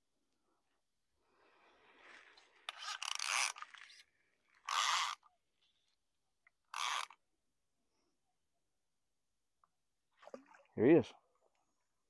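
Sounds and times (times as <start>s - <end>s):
fly line rasping through rod guides: 2.4s - 5.3s, 6.6s - 7.2s.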